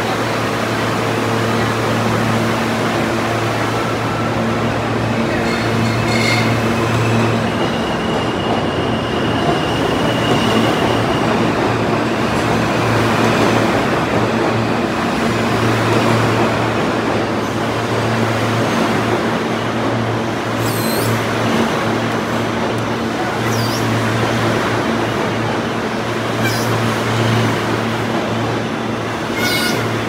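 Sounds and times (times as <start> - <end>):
subway train rumbling: 0.0 - 30.0
high wheel squeal: 5.5 - 11.3, 20.6 - 21.2, 29.3 - 30.0.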